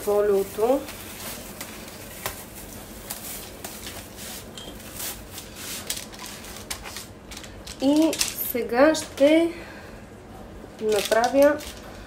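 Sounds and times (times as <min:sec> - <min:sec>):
food wrap crinkling: 0:00.0 - 0:09.2, 0:10.8 - 0:12.0.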